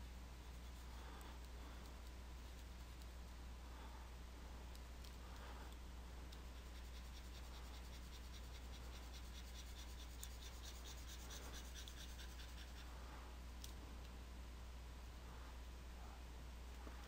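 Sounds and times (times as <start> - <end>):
low electrical hum: 0.0 - 17.0
pen scratching on paper: 6.4 - 12.8.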